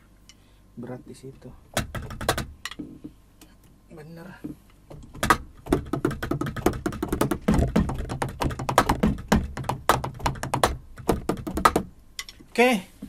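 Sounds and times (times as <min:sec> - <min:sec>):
dull low thuds: 0:04.9 - 0:11.9.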